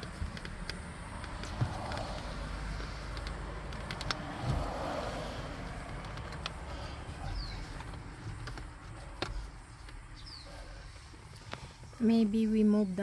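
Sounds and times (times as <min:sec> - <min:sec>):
bird chirp: 0:06.8 - 0:08.0, 0:10.1 - 0:11.0.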